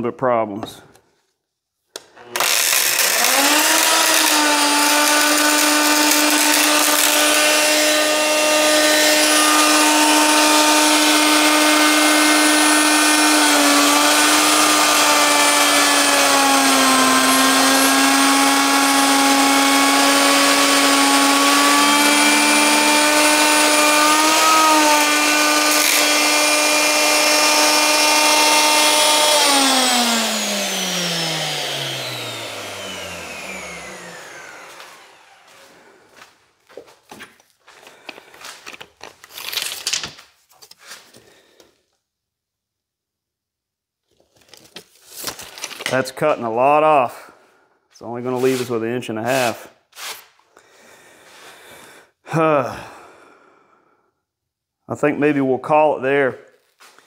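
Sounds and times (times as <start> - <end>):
router whining: 1.9 - 40.1.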